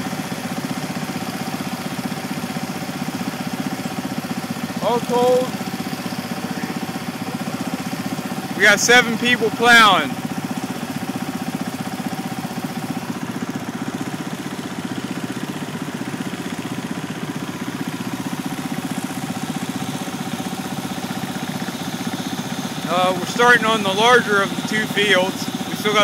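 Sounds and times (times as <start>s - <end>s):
small tractor engine putter: 0.0s - 26.0s.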